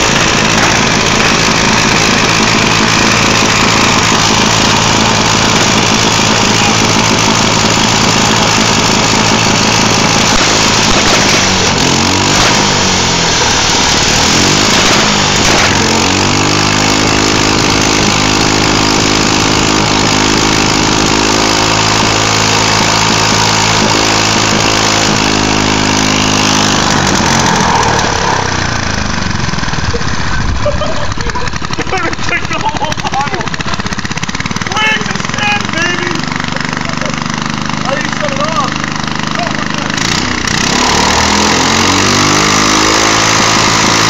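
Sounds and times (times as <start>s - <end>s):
small engine running loudly: 0.0s - 44.0s.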